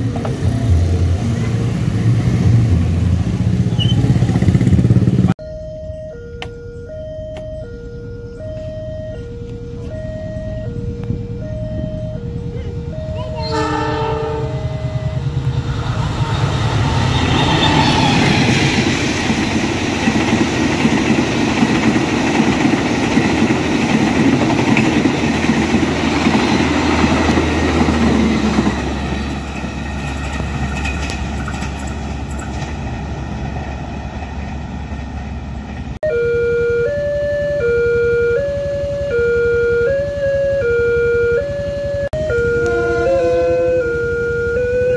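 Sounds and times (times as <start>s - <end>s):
crossing beeps: 0.1s - 1.6s, 3.7s - 4.2s, 5.4s - 19.8s, 22.6s - 32.6s
two-tone crossing alarm: 5.4s - 30.5s, 36.0s - 44.9s
train horn blast: 12.8s - 18.7s, 42.2s - 44.9s
train wheels clattering: 15.2s - 36.0s.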